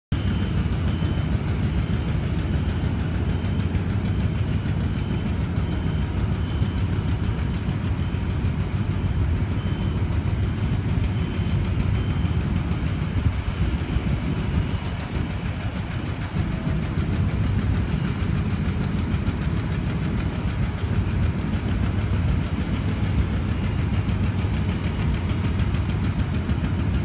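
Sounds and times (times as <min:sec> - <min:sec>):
crane diesel engine drone: 0:00.1 - 0:27.0.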